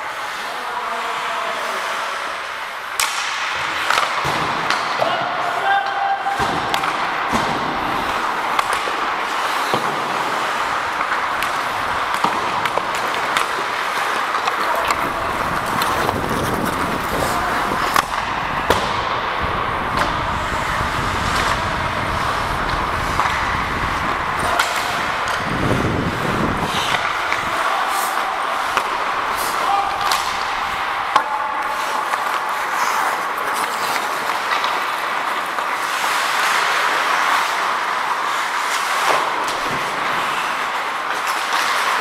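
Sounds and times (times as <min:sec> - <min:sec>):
skate blades scraping ice: 0:00.0 - 0:42.0
sticks and puck clacking: 0:00.0 - 0:42.0.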